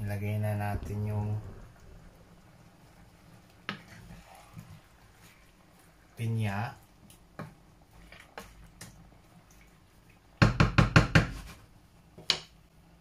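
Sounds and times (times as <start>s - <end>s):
wooden spatula knocking on pan: 10.4s - 11.5s.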